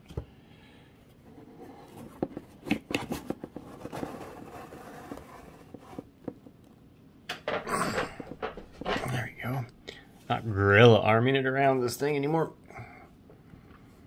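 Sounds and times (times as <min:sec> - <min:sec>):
light knocks and scrapes: 0:01.2 - 0:06.5.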